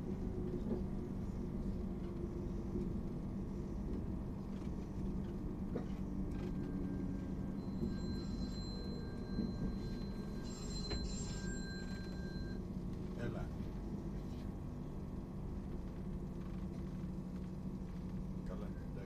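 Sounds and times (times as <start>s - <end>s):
train rumbling inside carriage: 0.0s - 19.0s
high brake squeals: 6.8s - 12.6s.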